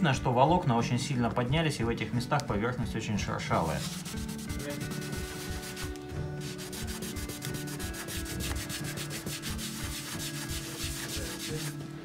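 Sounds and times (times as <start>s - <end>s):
cloth rubbing on wooden floor: 3.5s - 11.8s.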